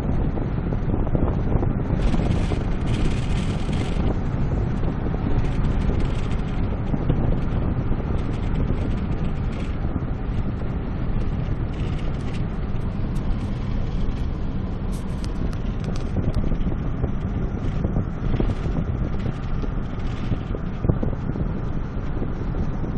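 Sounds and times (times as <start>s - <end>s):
road and engine rumble: 0.0s - 22.9s
wind buffeting microphone: 0.0s - 22.9s.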